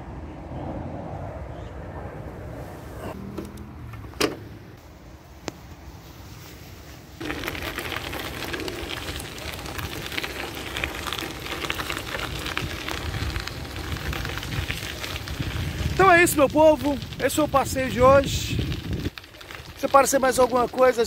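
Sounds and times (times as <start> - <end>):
bicycle tyres crunching on gravel: 5.6 - 21.0.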